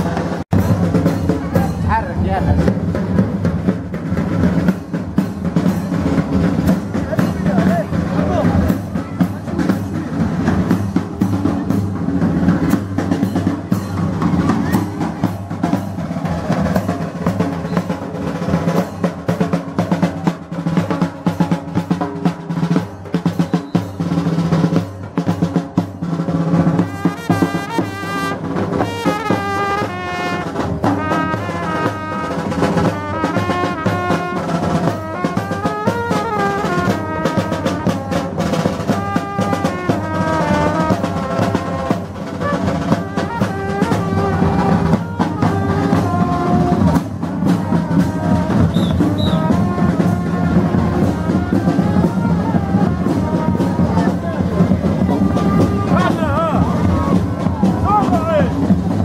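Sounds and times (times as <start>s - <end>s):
snare and bass drums beating: 0.0s - 59.0s
trumpet melody: 26.4s - 58.7s.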